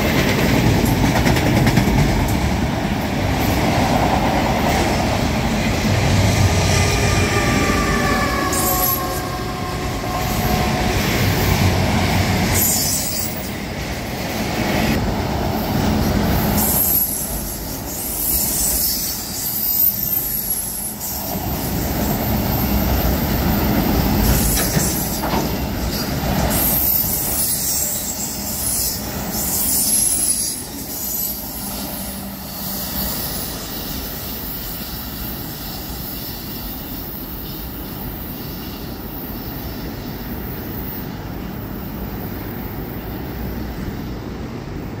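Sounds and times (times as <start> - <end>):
train wheels rumbling and clattering: 0.0 - 45.0
high wheel squeal: 6.4 - 11.7, 12.5 - 13.6, 16.4 - 42.8.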